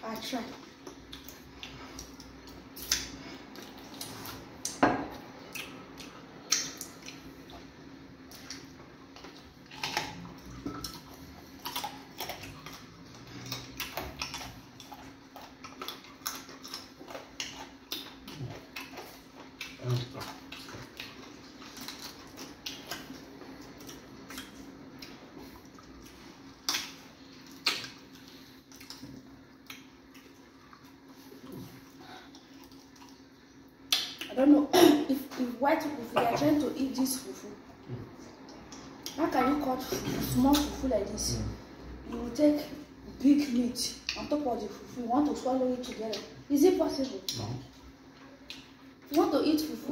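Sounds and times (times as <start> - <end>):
steady low hum: 0.0 - 49.9
wet chewing and mouth clicks: 0.6 - 34.4, 43.9 - 44.4, 47.0 - 49.2
fingers working food: 8.3 - 25.2.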